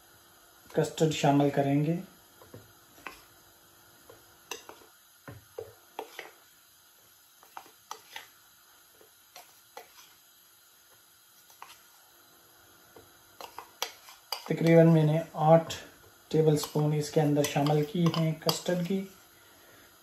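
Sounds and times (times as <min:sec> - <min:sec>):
spoon tapping and scraping dishes: 0:02.4 - 0:03.3, 0:04.5 - 0:06.4, 0:07.4 - 0:08.3, 0:13.4 - 0:14.7, 0:16.6 - 0:16.8, 0:17.4 - 0:19.0.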